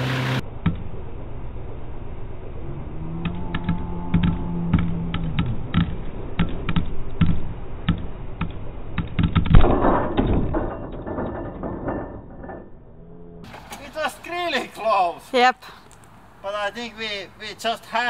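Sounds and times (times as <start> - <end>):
low hum: 0.0 - 13.8.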